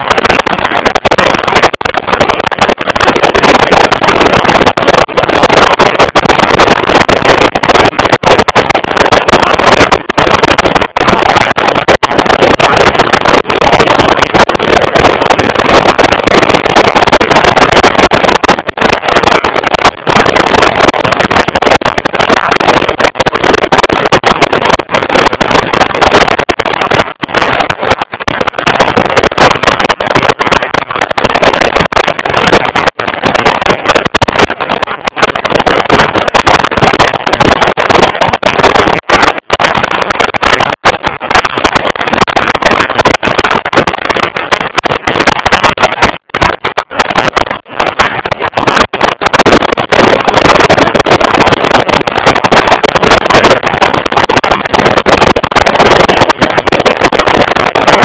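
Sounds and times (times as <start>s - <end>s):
rushing wind: 0.0s - 58.0s.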